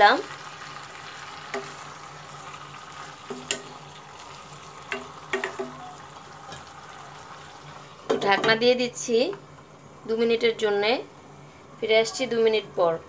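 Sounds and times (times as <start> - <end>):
fish frying in oil: 0.0 - 8.1
utensil clicking against pan: 3.3 - 3.7, 4.9 - 5.7.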